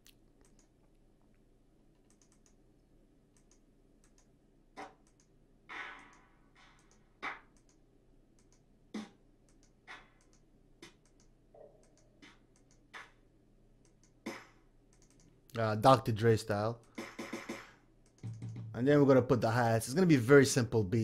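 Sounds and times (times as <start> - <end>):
faint mouse clicks: 0.0 - 1.4, 2.0 - 4.3, 6.8 - 7.8, 8.4 - 8.7, 9.4 - 12.8
clap and snare drum hits: 17.0 - 18.7.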